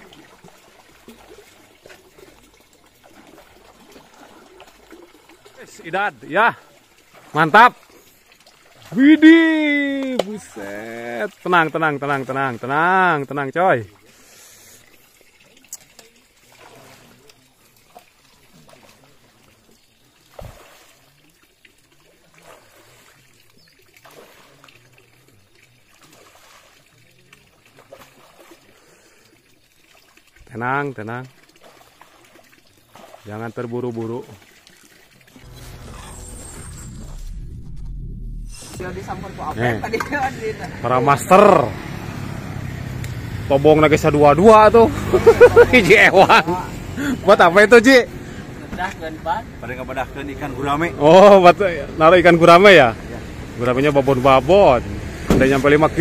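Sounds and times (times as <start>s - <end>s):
water trickling: 0.0s - 56.0s.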